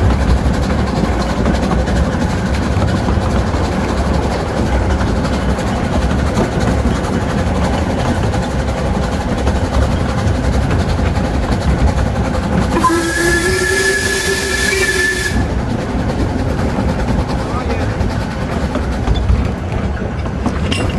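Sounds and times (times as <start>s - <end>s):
train rumbling on track: 0.0s - 20.9s
steam hissing: 12.0s - 18.6s
steam whistle blast: 12.7s - 15.5s.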